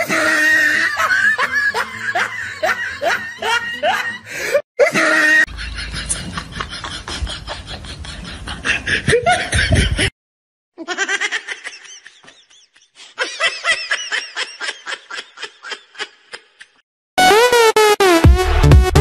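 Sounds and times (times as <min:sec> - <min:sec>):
loud music: 0:17.2 - 0:19.0.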